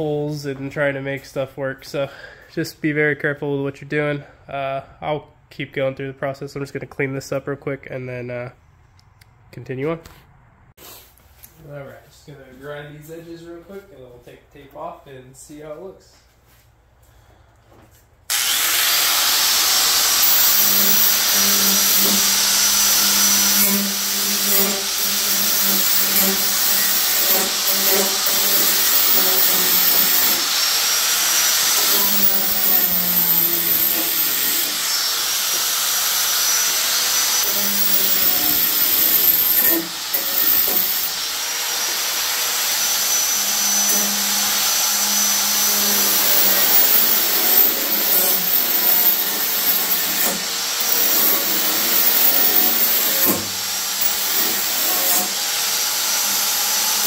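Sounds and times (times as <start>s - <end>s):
angle grinder grinding metal: 18.3s - 57.0s.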